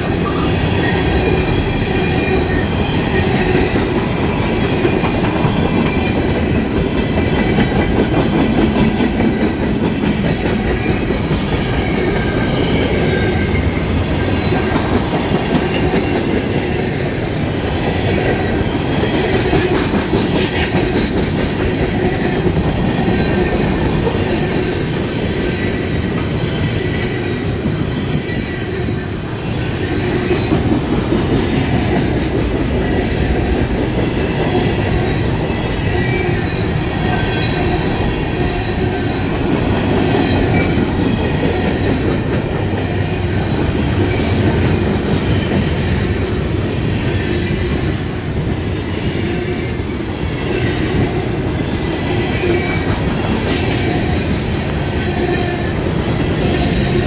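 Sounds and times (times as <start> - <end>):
clickety-clack over rail joints: 0.0 - 57.0
train wheels rumbling on rail: 0.0 - 57.0
high wheel squeal: 34.2 - 39.4.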